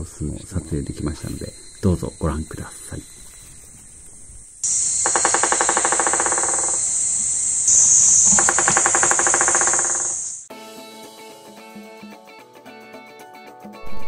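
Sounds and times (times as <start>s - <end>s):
high insect buzz: 0.7s - 10.5s
woodpecker drumming on tree: 4.0s - 10.5s.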